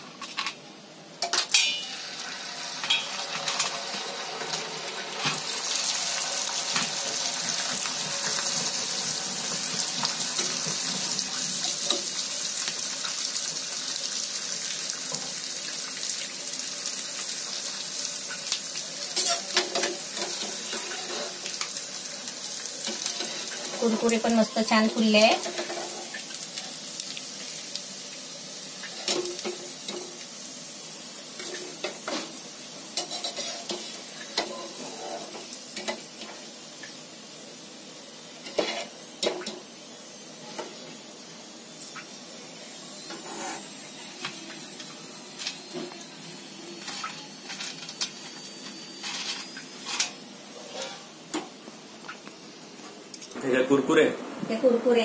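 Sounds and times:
hot oil sizzling: 0.8 - 55.0
metal spoon clinking on a pan: 1.2 - 1.9.

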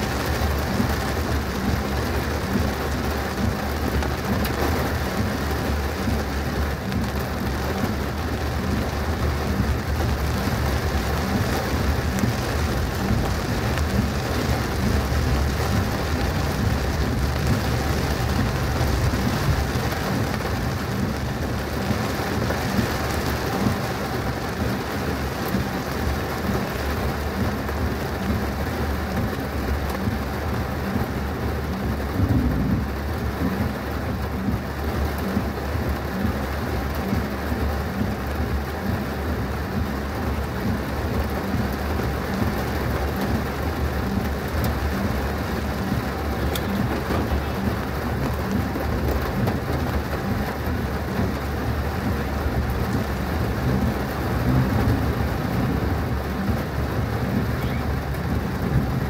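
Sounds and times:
heavy rain on car: 0.0 - 59.0
low rumble: 43.3 - 59.0.

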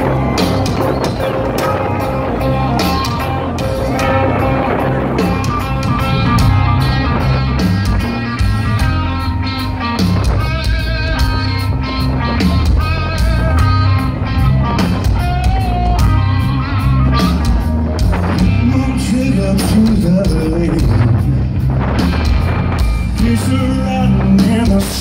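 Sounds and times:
bass guitar: 0.0 - 25.0
distorted electric guitars: 0.0 - 25.0
drum kit: 0.0 - 25.0
man singing: 18.3 - 21.5, 23.1 - 25.0.

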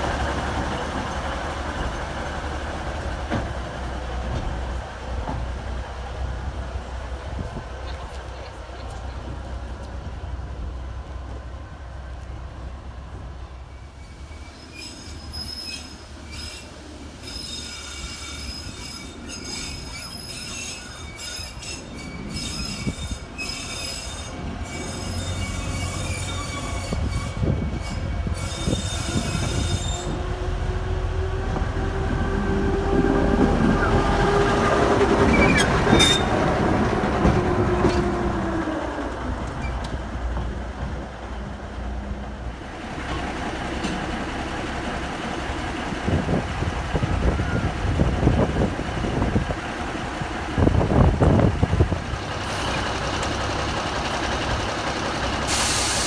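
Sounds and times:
diesel locomotive engine rumble: 0.0 - 56.0
train wheels squealing: 13.7 - 30.3, 35.3 - 36.4.

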